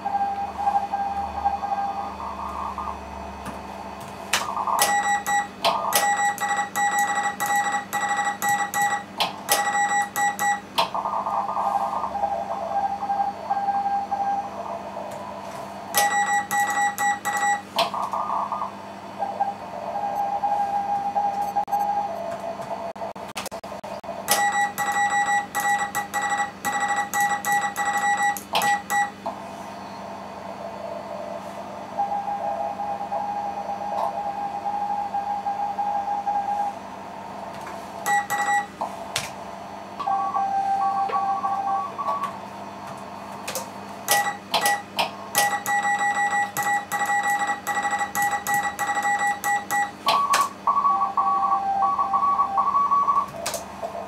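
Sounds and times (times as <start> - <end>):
quieter morse signals: 0.0 - 14.6, 15.9 - 18.1, 24.3 - 29.2, 38.0 - 38.8, 40.0 - 42.4, 44.1 - 53.3
morse code tones: 4.6 - 10.8, 15.9 - 17.8, 24.3 - 29.2, 38.0 - 38.8, 40.0 - 42.4, 44.1 - 53.3.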